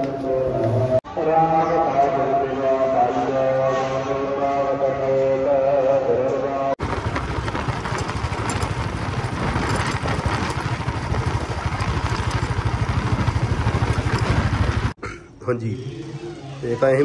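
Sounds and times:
vehicle engine running: 0:06.8 - 0:15.0
wind and road noise: 0:06.8 - 0:15.0.

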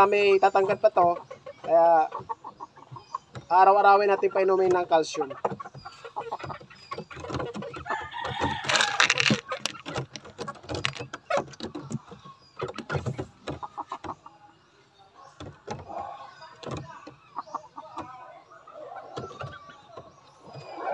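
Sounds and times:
chickens clucking: 0:00.0 - 0:20.9
rooster crowing: 0:07.9 - 0:09.2.

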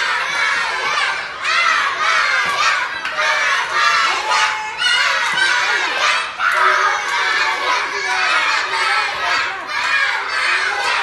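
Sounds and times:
children shouting and cheering: 0:00.0 - 0:11.0.

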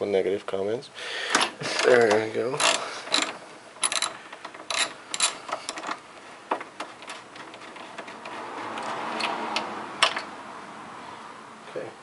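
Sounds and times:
ratchet wrench clicking: 0:01.8 - 0:05.9.

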